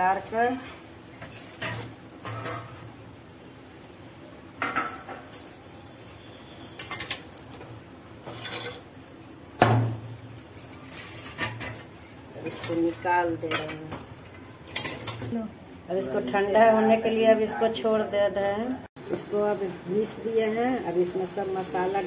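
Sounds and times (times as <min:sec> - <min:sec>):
spatula scraping metal pan: 0:08.2 - 0:08.9.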